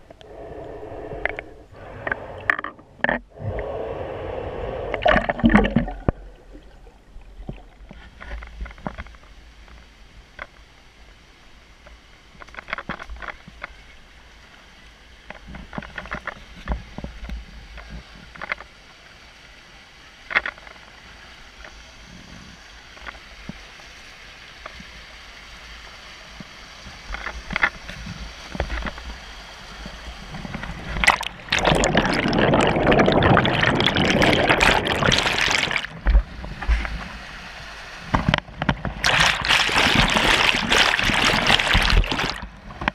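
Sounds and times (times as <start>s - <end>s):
bubbling clicks and pops: 4.9s - 7.9s, 30.5s - 36.2s, 38.4s - 42.5s
rushing waterfall water: 39.0s - 42.5s.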